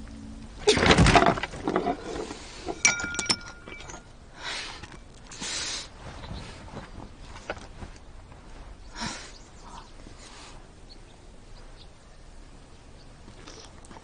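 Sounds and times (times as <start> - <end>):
shards clinking: 0.7 - 4.2.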